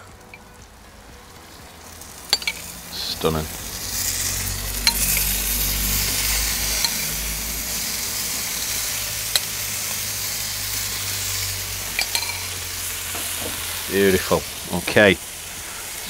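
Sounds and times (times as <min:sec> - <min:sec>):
marinade sizzling: 0:00.0 - 0:16.0.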